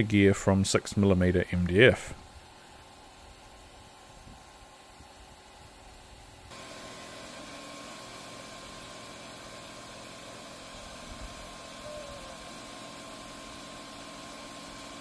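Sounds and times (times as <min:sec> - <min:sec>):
laser cutter humming and hissing: 0:01.7 - 0:15.0
faint high tone: 0:11.8 - 0:12.4.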